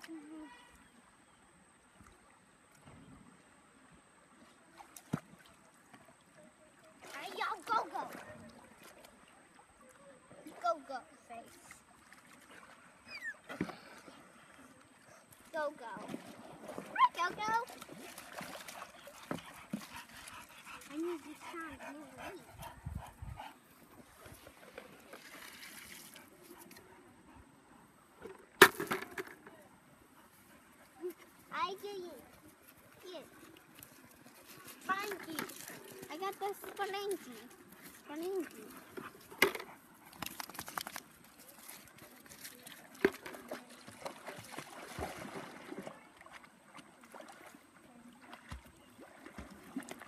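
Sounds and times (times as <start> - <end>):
faint river water trickling: 0.0 - 28.6, 29.4 - 50.0
dog splashing in water: 15.8 - 19.9, 41.8 - 46.4.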